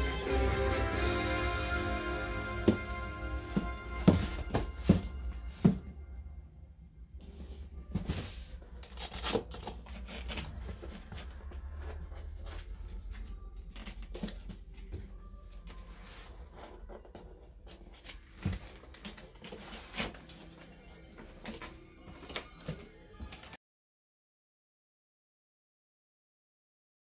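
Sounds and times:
cardboard box scraping and rustling: 3.5 - 5.8, 15.9 - 20.6.

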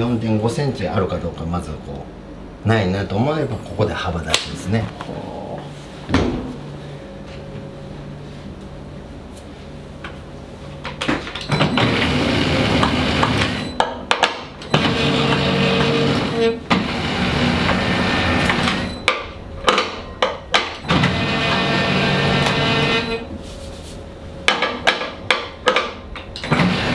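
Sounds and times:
dough sheeter motor running: 11.6 - 13.7, 14.7 - 19.0, 20.8 - 23.3, 26.4 - 26.9.

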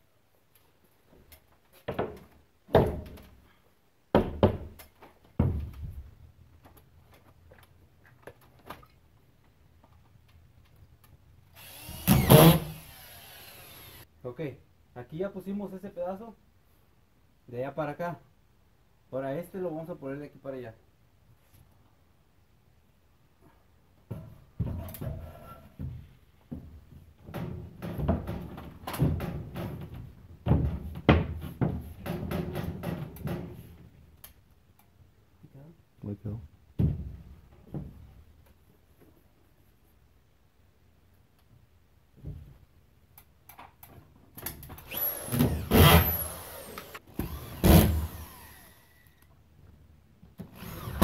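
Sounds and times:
cordless drill driving screw: 11.6 - 14.0, 44.8 - 49.3, 50.5 - 51.0.

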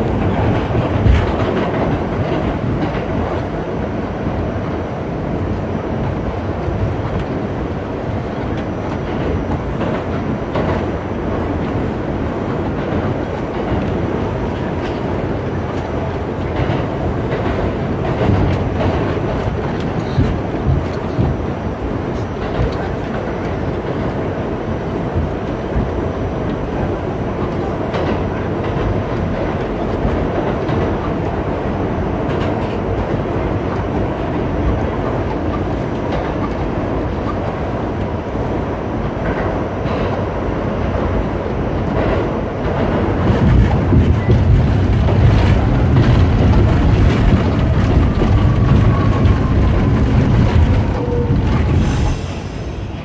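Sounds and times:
subway train rumble and rattle: 0.0 - 53.0
wheel clacks: 42.0 - 51.9.

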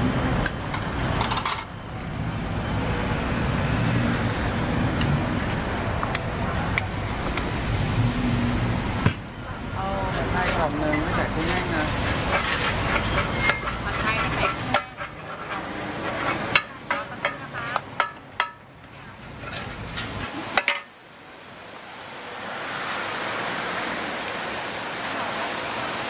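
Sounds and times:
noodles sizzling on a pan: 6.2 - 9.0, 9.6 - 20.9
metal spatulas scraping a pan: 10.1 - 20.8.

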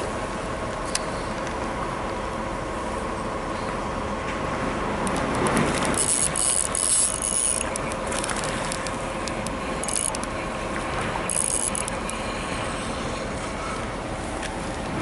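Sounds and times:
fishing reel clicking and whirring: 5.0 - 12.3.

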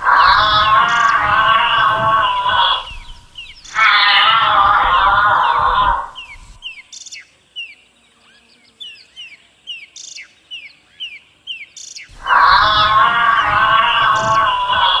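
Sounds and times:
bird chirping: 0.0 - 15.0.

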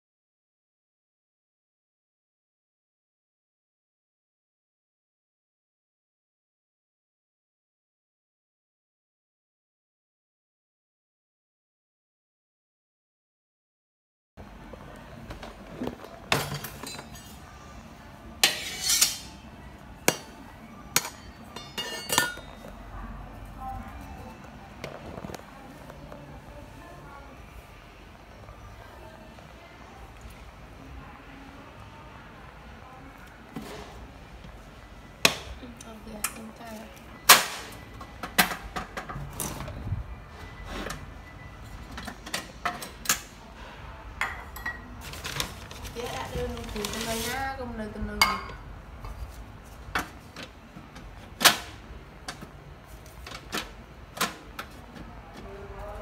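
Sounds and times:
kitchen utensils knocking: 21.0 - 22.6
scraping rustle: 45.0 - 47.6.

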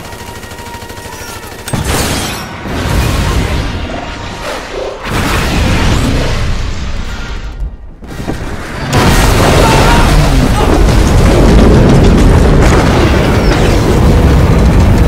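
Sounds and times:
wreckage crashing and rumbling: 5.0 - 15.0.

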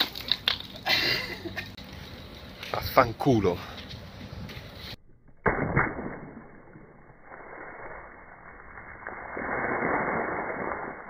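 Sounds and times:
slowed water balloon splash: 5.4 - 11.0.

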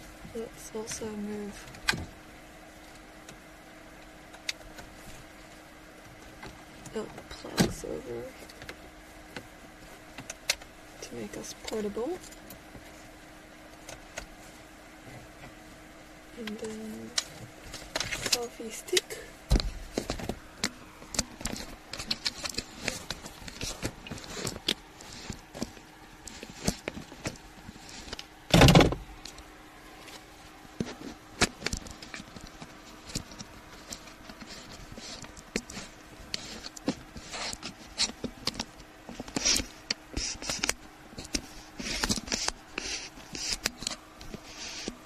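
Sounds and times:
loud thump: 28.5 - 29.0.

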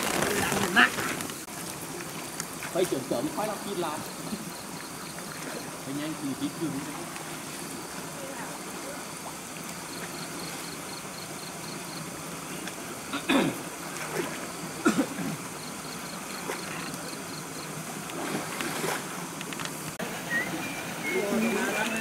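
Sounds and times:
water sloshing: 0.0 - 22.0
sharp water splashes: 12.6 - 15.2, 15.8 - 20.6.

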